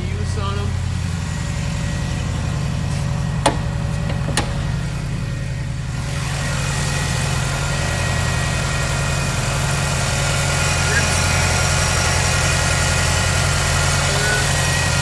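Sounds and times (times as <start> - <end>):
car engine idling: 0.0 - 15.0
car hood latch clicks: 3.4 - 4.6.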